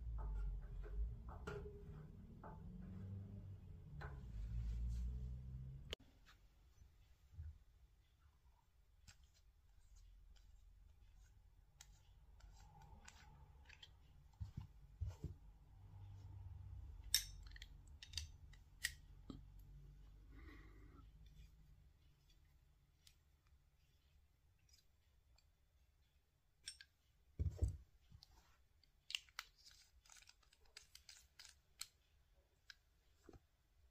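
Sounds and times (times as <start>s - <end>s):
metal valve clicking: 17.0s - 19.1s.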